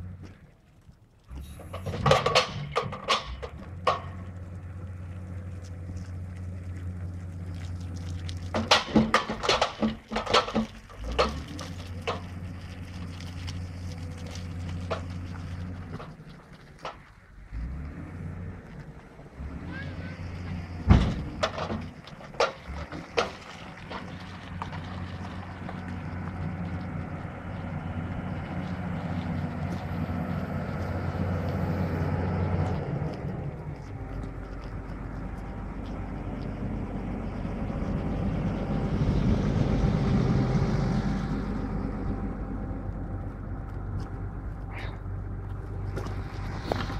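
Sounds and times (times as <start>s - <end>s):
heavy diesel engine running: 0.0s - 0.5s, 1.3s - 46.9s
low thump: 20.8s - 21.9s.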